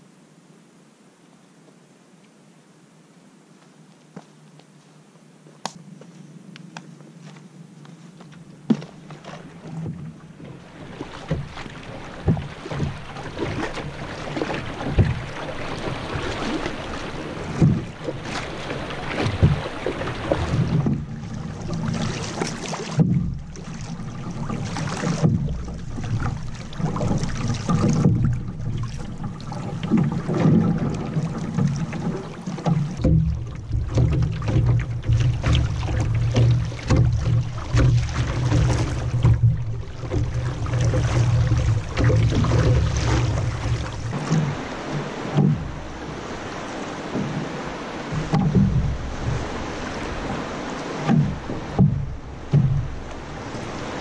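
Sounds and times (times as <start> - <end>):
river water rushing and splashing: 8.2 - 54.0
scattered knocks: 48.1 - 49.6, 51.0 - 53.1.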